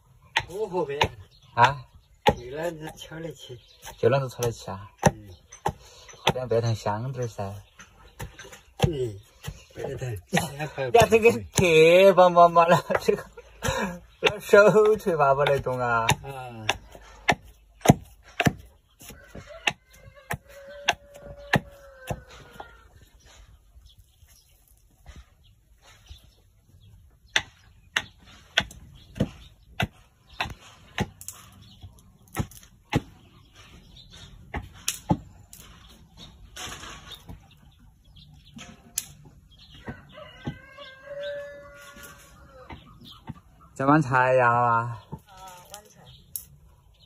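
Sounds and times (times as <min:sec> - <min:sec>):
pounding in a mortar: 0:08.2 - 0:18.7
hen clucking: 0:37.2 - 0:44.0.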